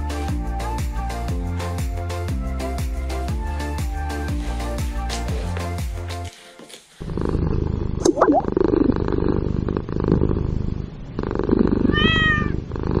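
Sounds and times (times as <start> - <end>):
cat purring: 6.7 - 13.0
cat meowing: 11.8 - 12.6.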